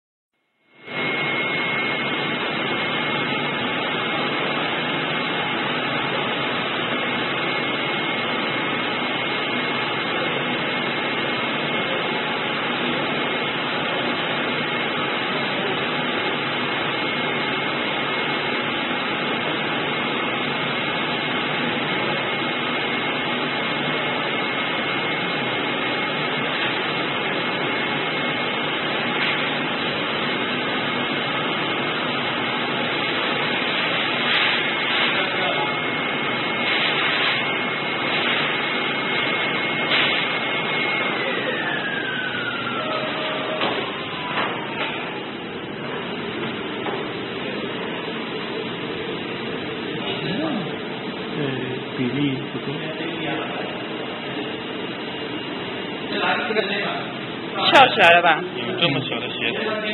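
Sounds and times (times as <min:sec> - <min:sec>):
cutting machine rushing and whining: 0:40.8 - 0:45.4.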